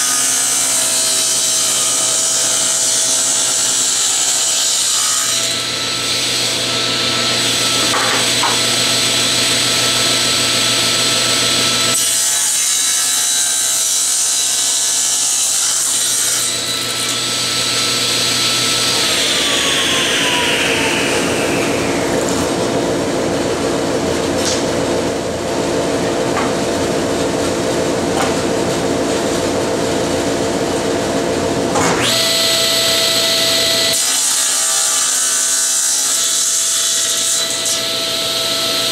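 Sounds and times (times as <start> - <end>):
table saw cutting wood: 0.0 - 23.7, 31.7 - 38.9.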